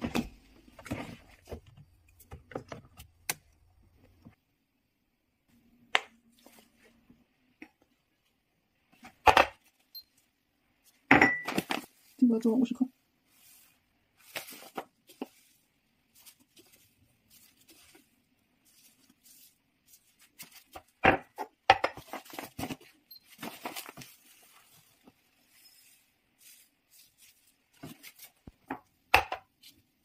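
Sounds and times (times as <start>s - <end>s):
plastic bag rustling: 11.5s - 21.0s, 22.0s - 28.5s.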